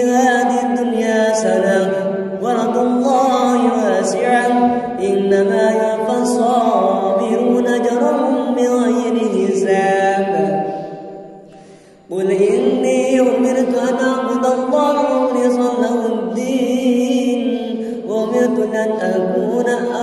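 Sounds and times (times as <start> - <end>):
person chanting melodic recitation: 0.0 - 11.0, 12.1 - 20.0.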